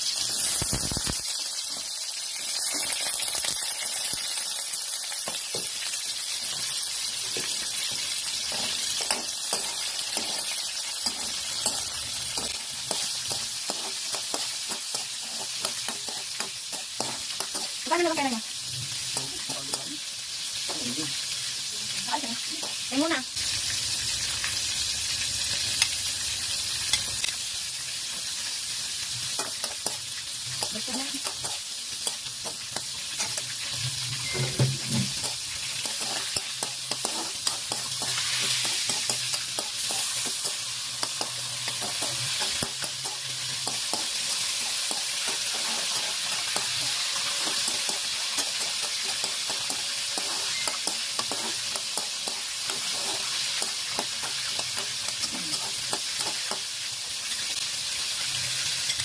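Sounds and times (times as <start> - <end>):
vegetables sizzling in hot oil: 0.0 - 59.0
metal spatula scraping a wok: 6.4 - 21.3, 28.2 - 57.6.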